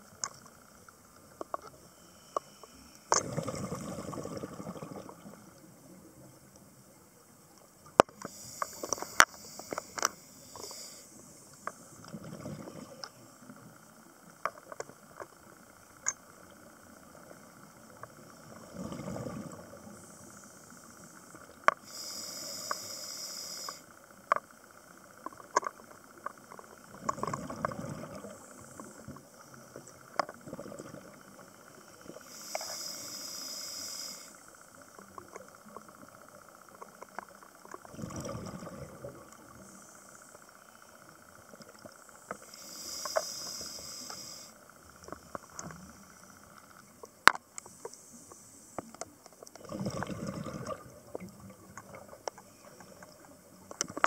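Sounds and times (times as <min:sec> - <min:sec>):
bubbly exhalations: 0:03.2 - 0:05.2, 0:37.9 - 0:39.1, 0:49.6 - 0:51.0
hissing regulator inhalations: 0:08.2 - 0:12.0, 0:18.4 - 0:24.0, 0:31.8 - 0:34.8, 0:42.3 - 0:44.7.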